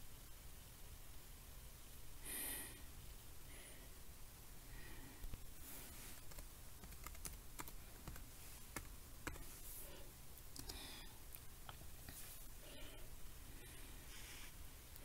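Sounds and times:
laptop keyboard keystrokes: 0:06.2 - 0:09.6, 0:10.5 - 0:10.8.

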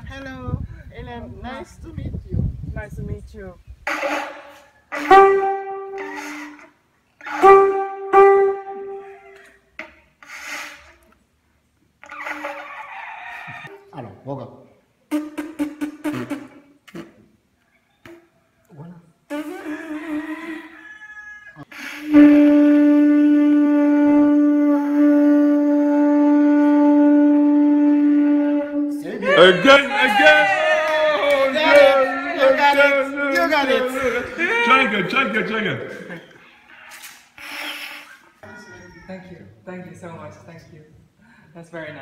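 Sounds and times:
conch shell horn blasts: 0:03.9 - 0:09.3, 0:22.0 - 0:29.0
breathy airy blowing: 0:03.9 - 0:09.4, 0:10.1 - 0:11.1, 0:21.7 - 0:28.6, 0:37.1 - 0:38.4.

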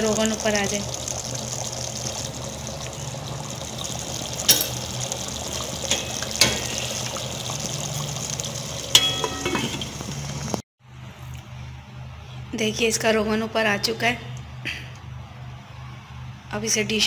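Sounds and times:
curry bubbling in a pot: 0:00.0 - 0:10.6
metal lid clinking on pot: 0:08.9 - 0:09.9.

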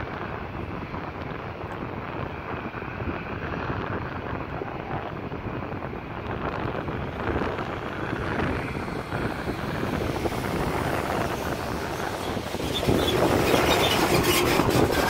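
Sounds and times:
low vehicle rumble: 0:00.0 - 0:15.0
wind buffeting microphone: 0:00.0 - 0:15.0.

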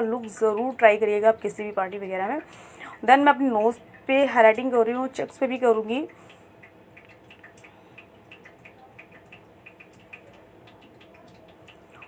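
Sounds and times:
faint small ticks: 0:05.8 - 0:12.0.

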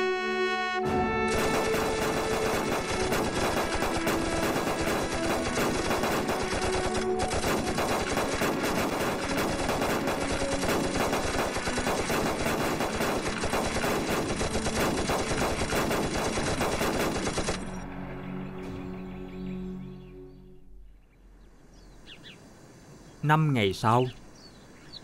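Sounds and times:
soft music with low notes: 0:00.0 - 0:21.4
automatic weapons firing volleys: 0:01.2 - 0:17.8.

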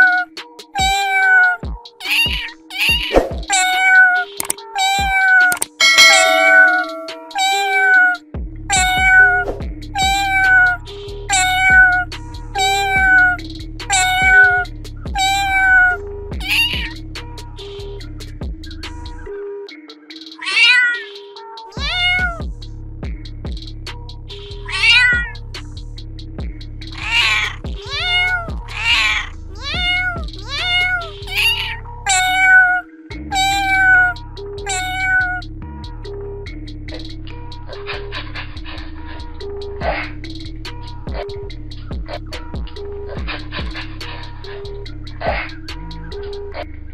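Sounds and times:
cat meowing: 0:00.0 - 0:17.0, 0:20.4 - 0:22.4, 0:24.6 - 0:25.4, 0:27.0 - 0:35.5
background music with bass: 0:08.2 - 0:20.4, 0:21.6 - 0:32.4, 0:33.0 - 0:46.9.

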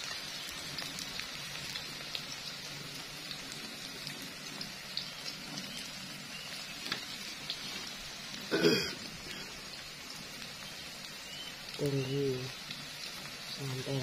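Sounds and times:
spices frying in oil: 0:00.0 - 0:14.0
small pops and crackles: 0:03.3 - 0:08.0.

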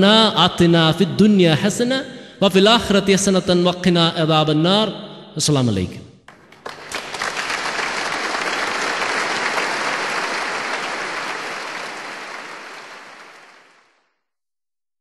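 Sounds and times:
audience applauding: 0:06.3 - 0:14.1.

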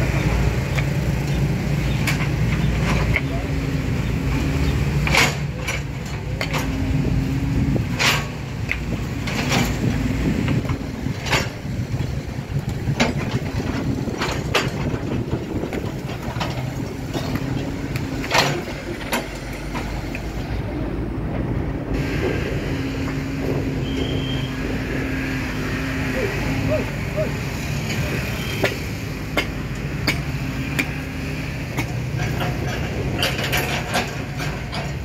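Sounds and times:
excavator diesel engine running: 0:00.0 - 0:35.0
sharp metal knocks: 0:27.9 - 0:35.0.

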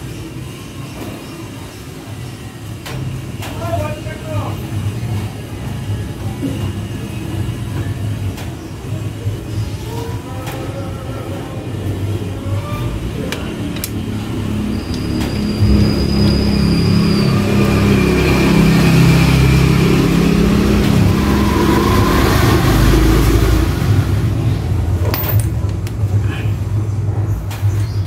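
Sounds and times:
vehicle engine running: 0:13.0 - 0:27.4.

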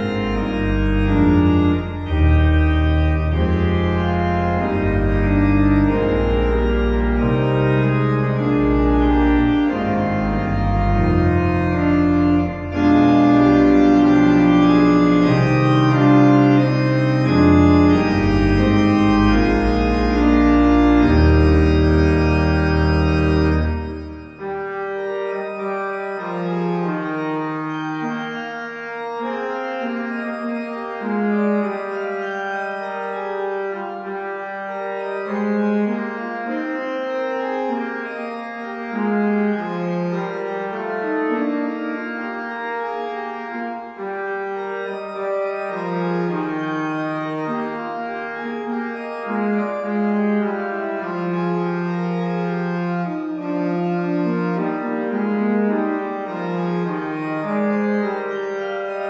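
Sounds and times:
deep organ pedal bass: 0:00.0 - 0:59.0
organ playing hymn chords: 0:00.0 - 0:59.0.

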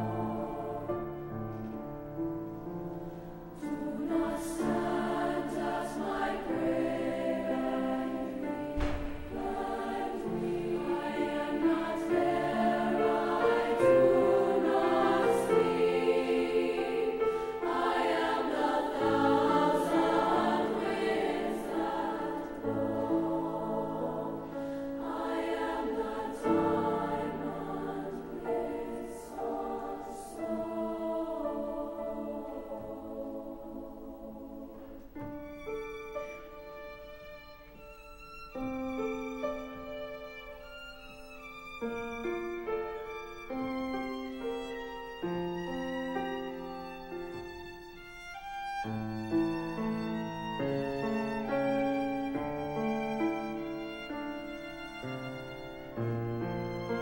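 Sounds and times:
choir singing sustained chords: 0:00.0 - 0:57.0.

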